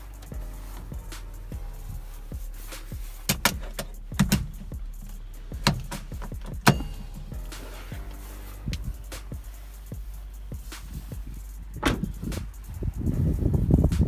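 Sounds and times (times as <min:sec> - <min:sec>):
steering wheel metallic clicks: 0:03.3 - 0:07.3.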